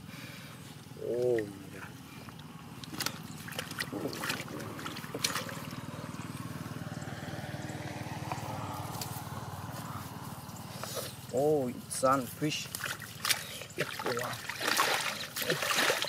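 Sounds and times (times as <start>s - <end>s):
hands splashing in muddy water: 2.8s - 5.9s, 12.6s - 16.0s
water trickling: 12.6s - 16.0s.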